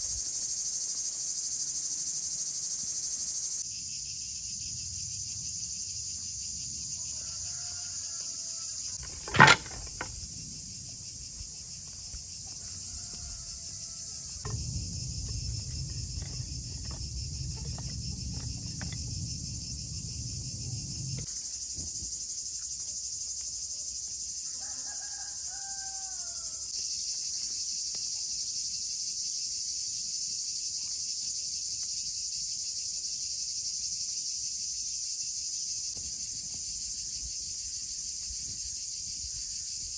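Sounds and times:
insects chorus: 0.0s - 39.9s.

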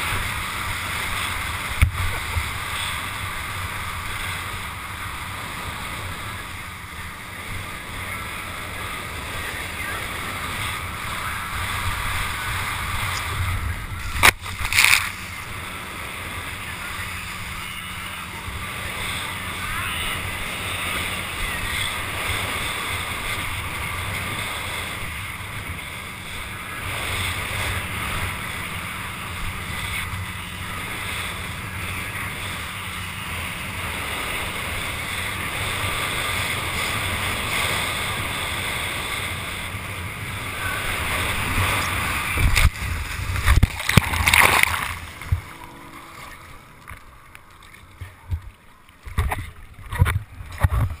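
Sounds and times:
rushing water: 0.0s - 51.0s
water sloshing and gurgling: 0.0s - 51.0s
wind buffeting camera: 0.0s - 51.0s
heavy splashing impacts: 41.2s - 46.2s.

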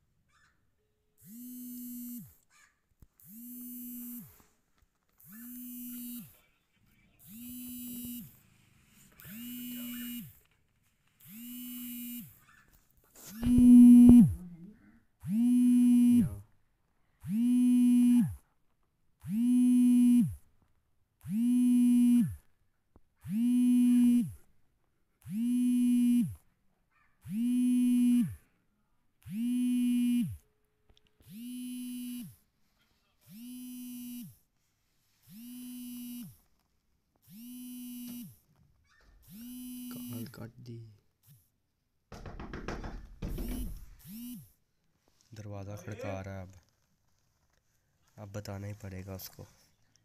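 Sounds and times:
mobile phone vibrating: 1.2s - 2.4s, 3.2s - 4.6s, 5.2s - 6.4s, 7.2s - 10.5s, 11.1s - 12.4s, 13.2s - 14.5s, 15.2s - 16.5s, 17.2s - 18.5s, 19.2s - 20.5s, 21.2s - 22.5s, 23.2s - 24.5s, 25.2s - 26.5s, 27.2s - 28.5s, 29.2s - 30.5s, 31.2s - 32.6s, 33.2s - 34.5s, 35.2s - 36.5s, 37.2s - 38.5s, 39.2s - 40.4s, 42.3s - 44.6s.

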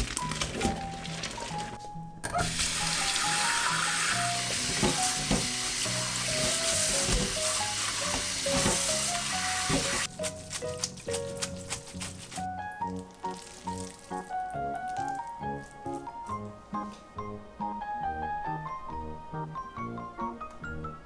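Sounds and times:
water dripping: 0.0s - 1.8s, 2.5s - 16.4s
tap water running into colander: 0.0s - 10.1s
background music: 0.0s - 21.0s.

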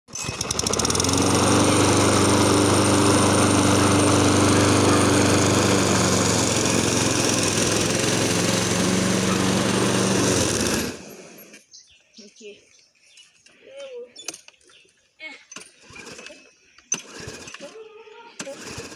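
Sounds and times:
lawn mower engine cutting grass: 0.1s - 11.7s, 15.7s - 17.8s, 18.4s - 18.9s.

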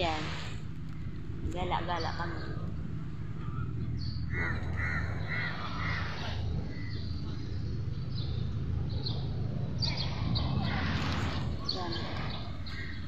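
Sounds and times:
steady low hum: 0.0s - 13.0s
crow cawing: 4.3s - 6.2s.

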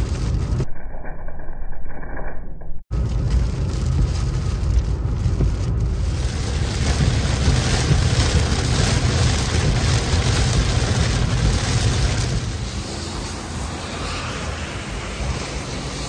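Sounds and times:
heavy rain on windshield: 0.0s - 0.6s, 2.9s - 14.0s
road and tyre rumble: 0.0s - 0.7s, 2.8s - 16.0s.

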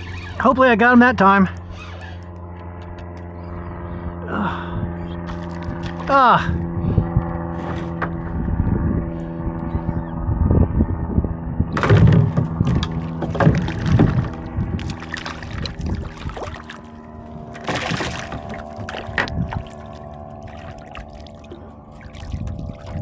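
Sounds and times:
steady hum: 0.0s - 23.0s
fish splashing at water surface: 12.9s - 17.0s, 17.6s - 23.0s.

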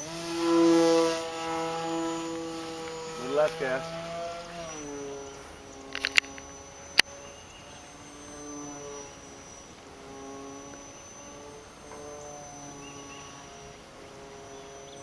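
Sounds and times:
model airplane motor humming: 0.0s - 15.0s
sharp clicks: 5.8s - 7.1s.

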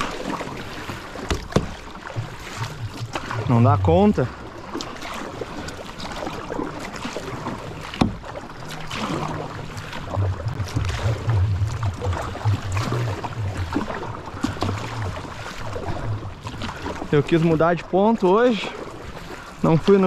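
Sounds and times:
kayak paddle strokes in water: 0.0s - 20.0s
water rushing past hull: 0.0s - 20.0s
low rumble: 10.0s - 15.2s.

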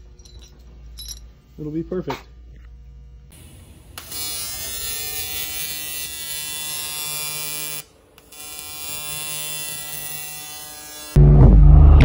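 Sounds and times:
welding arc buzzing: 3.3s - 11.2s.

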